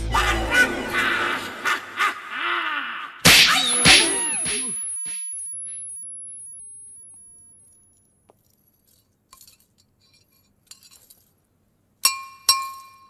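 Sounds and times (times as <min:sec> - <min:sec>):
thin high ringing tone: 0:03.6 - 0:08.2.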